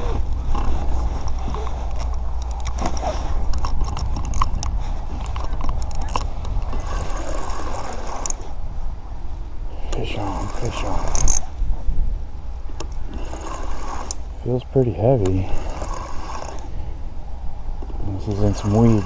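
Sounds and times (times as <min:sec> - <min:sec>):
steady low rumble: 0:00.0 - 0:19.0
fishing reel clicking rapidly: 0:05.8 - 0:08.4, 0:09.9 - 0:11.5, 0:13.0 - 0:14.2, 0:15.3 - 0:16.8, 0:18.3 - 0:19.0.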